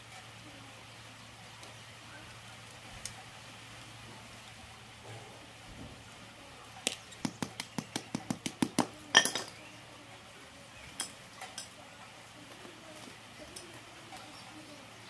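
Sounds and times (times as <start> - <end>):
pliers clinking on concrete: 9.1 - 9.6.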